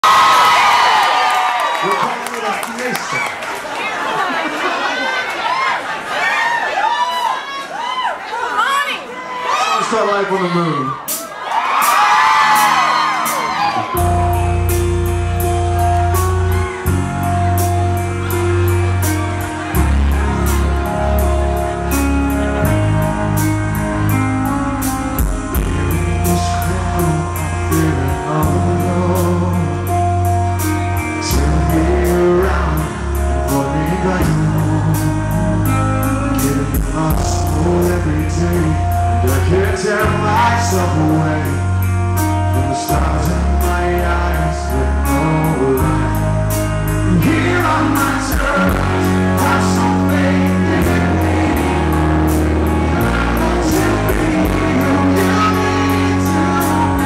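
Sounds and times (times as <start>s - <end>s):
electric guitars: 11.6s - 57.0s
bass line: 12.0s - 57.0s
drums with cymbal beat: 24.8s - 26.0s
man singing: 25.5s - 30.2s, 31.0s - 57.0s.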